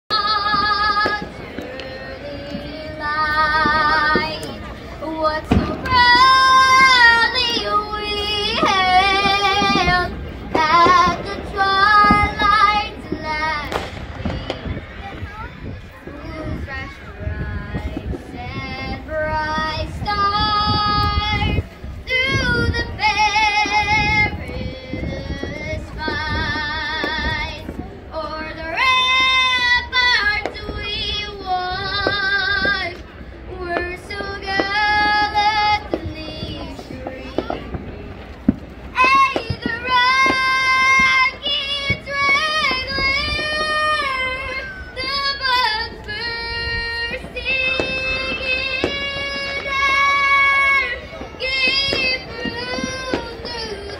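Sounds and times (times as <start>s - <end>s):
crowd rumble: 0.0s - 53.9s
person singing slow melody: 0.1s - 14.8s, 39.0s - 53.9s.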